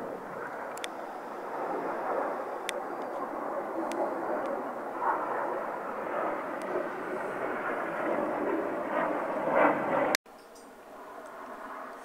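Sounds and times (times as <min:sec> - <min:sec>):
distant jets passing overhead: 0:00.0 - 0:12.0.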